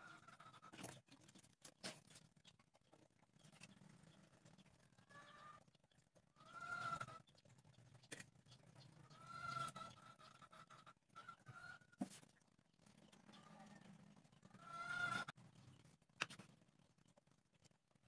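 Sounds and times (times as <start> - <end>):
chickens calling: 0.0 - 1.1, 2.1 - 12.2, 12.8 - 15.7.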